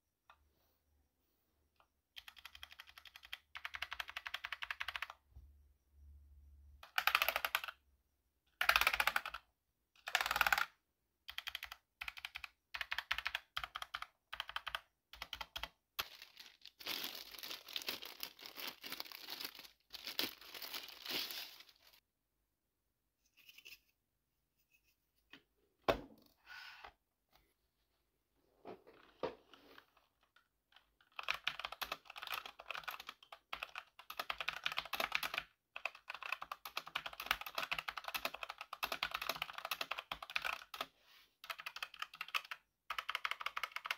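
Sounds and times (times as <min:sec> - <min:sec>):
mechanical keyboard keystrokes: 0:02.2 - 0:05.2, 0:06.8 - 0:07.8, 0:08.6 - 0:09.4, 0:10.0 - 0:10.7, 0:41.5 - 0:43.9.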